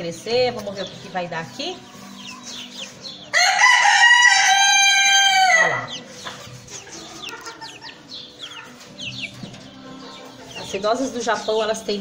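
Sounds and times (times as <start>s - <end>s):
chicks peeping: 0.0s - 12.0s
rooster crowing: 3.3s - 5.9s.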